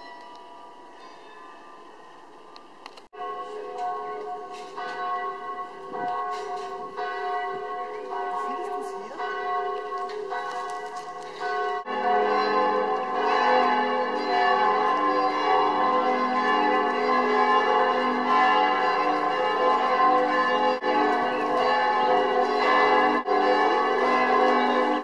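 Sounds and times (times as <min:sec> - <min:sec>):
church bells ringing: 0:00.0 - 0:25.0.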